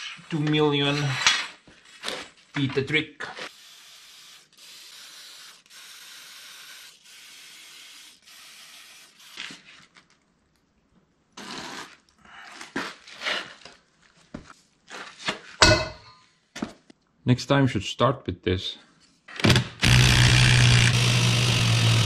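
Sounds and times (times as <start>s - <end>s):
aerosol can spraying: 3.6s - 9.6s.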